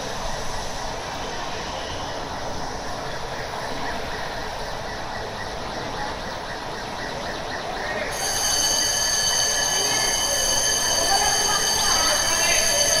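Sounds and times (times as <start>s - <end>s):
noisy din in a large hall: 0.0s - 13.0s
shrill alarm tone: 8.1s - 13.0s.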